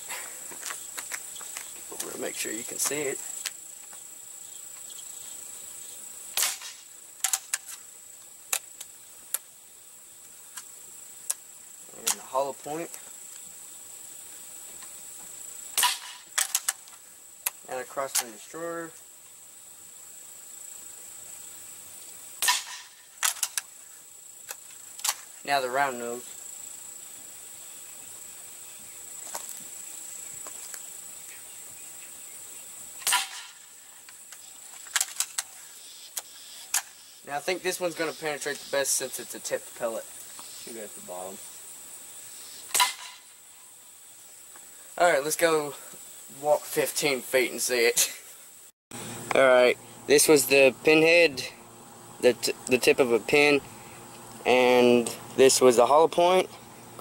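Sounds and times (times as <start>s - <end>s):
pellet rifle shot: 6.3s - 7.6s, 15.8s - 16.7s, 22.4s - 23.5s, 33.0s - 33.6s, 42.7s - 43.2s.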